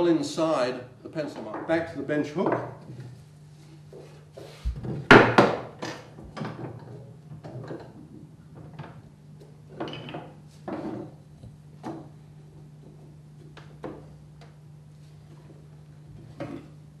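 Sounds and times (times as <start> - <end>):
wood knocking on workbench: 4.7 - 5.7.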